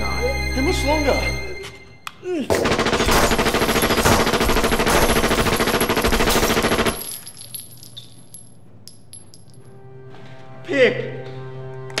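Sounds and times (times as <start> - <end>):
rapid gunfire burst: 2.5 - 7.0
shell casings clinking: 3.3 - 9.7.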